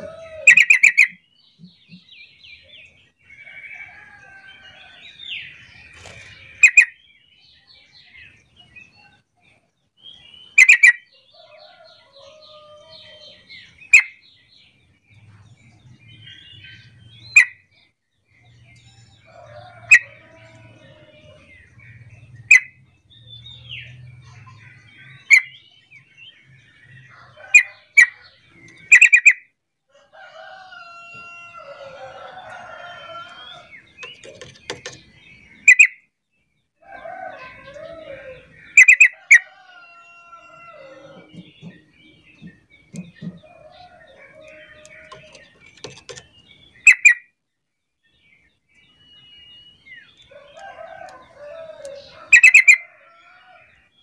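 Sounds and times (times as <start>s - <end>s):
bird chattering: 32.8s - 36.0s, 40.8s - 47.2s.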